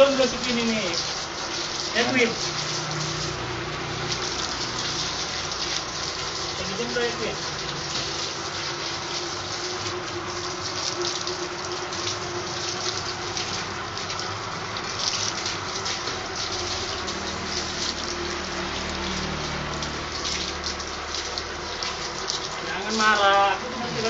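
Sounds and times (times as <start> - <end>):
water gushing from a hose: 0.0 - 24.0.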